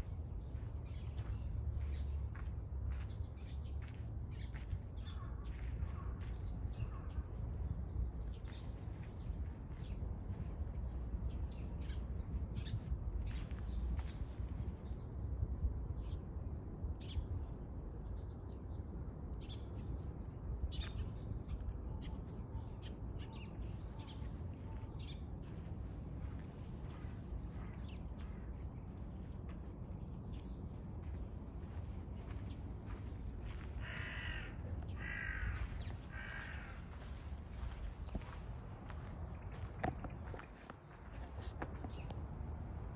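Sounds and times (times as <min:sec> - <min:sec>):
crow cawing: 0:33.8 - 0:37.1.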